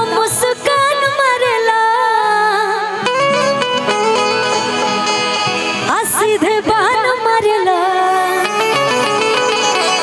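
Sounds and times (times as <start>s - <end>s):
live band music: 2.8s - 10.0s.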